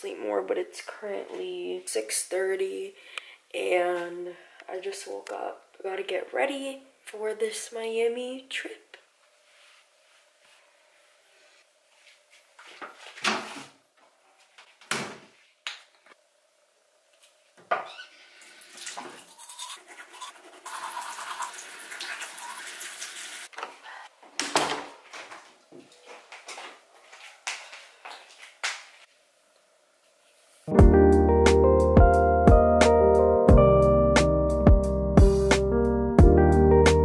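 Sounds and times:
items knocking and clattering: 24.3 - 26.8.

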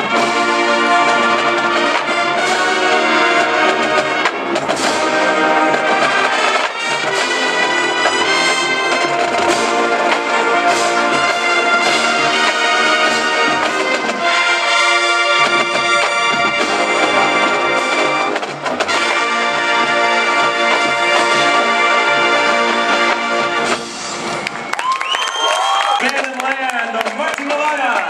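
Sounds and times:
marching band brass playing: 0.0 - 24.8.

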